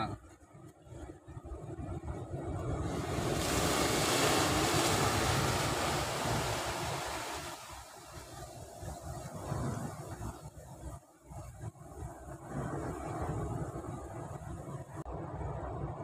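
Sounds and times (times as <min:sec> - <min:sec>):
wind buffeting microphone: 0:00.0 - 0:16.0
waves breaking on rocks: 0:02.3 - 0:10.6.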